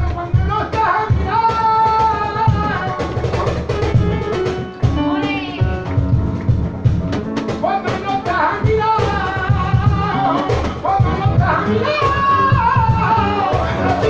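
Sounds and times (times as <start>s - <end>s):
man singing flamenco: 0.0s - 4.2s, 7.6s - 14.0s
band playing: 0.0s - 14.0s
drum kit beating: 0.0s - 14.0s.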